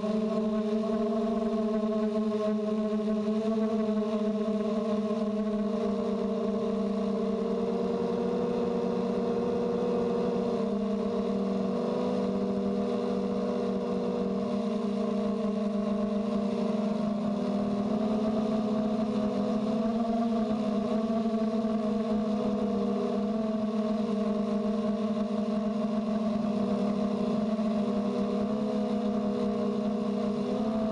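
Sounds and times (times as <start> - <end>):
quadcopter propellers buzzing: 0.0 - 30.9.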